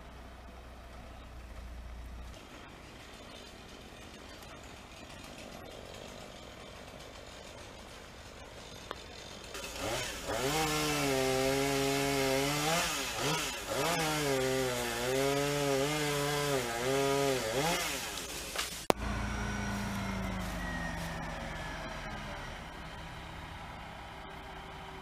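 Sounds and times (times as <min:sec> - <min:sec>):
chainsaw cutting wood: 0:02.8 - 0:21.3.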